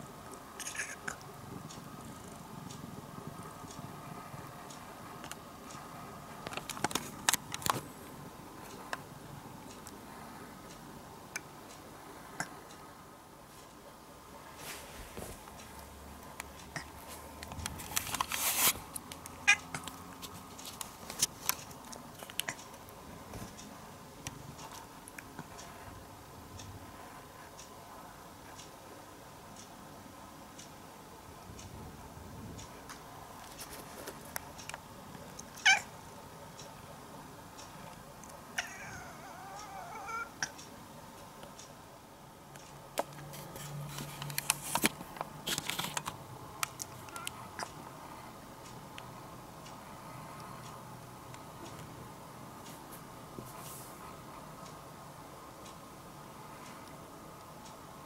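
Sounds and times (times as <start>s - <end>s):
faint low hum: 0.0s - 58.0s
cat meowing: 35.6s - 35.9s, 38.6s - 40.4s.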